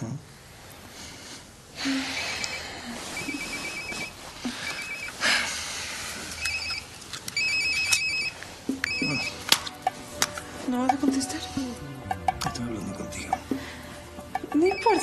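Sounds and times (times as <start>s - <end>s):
phone ringtone trilling: 2.2s - 5.2s, 6.4s - 9.9s, 14.3s - 15.0s.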